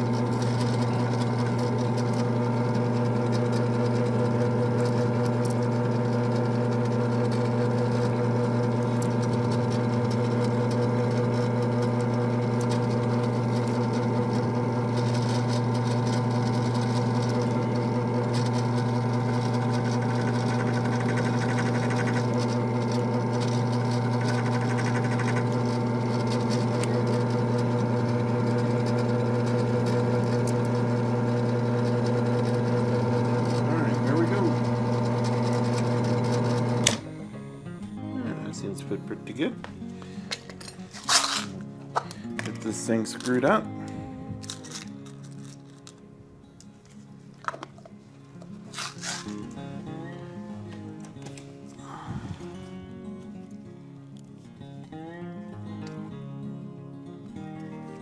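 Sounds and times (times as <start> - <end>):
drill press motor humming: 0.0 - 37.2.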